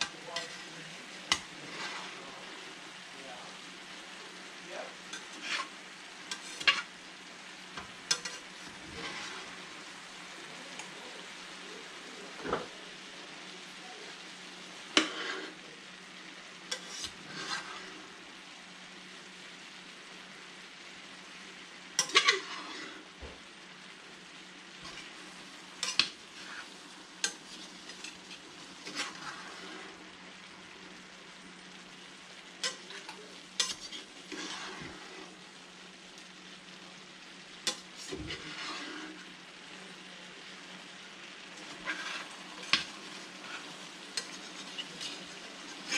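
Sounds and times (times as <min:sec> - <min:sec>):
metal spatula scraping a pan: 0:00.0 - 0:02.8, 0:05.0 - 0:07.0, 0:07.6 - 0:12.8, 0:14.6 - 0:18.2, 0:21.9 - 0:23.4, 0:24.7 - 0:31.0, 0:32.4 - 0:35.6, 0:37.5 - 0:39.4, 0:41.3 - 0:45.9
food sizzling in a skillet: 0:00.0 - 0:45.9.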